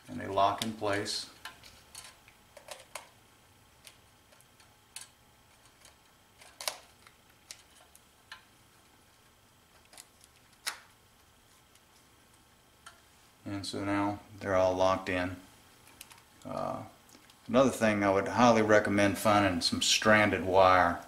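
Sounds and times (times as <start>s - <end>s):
sharp plastic snaps: 3.8s - 8.5s.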